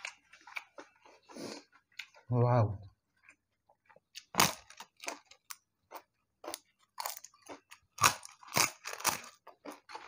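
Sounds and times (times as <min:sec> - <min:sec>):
crisp wafer crunching: 0:04.1 - 0:10.0.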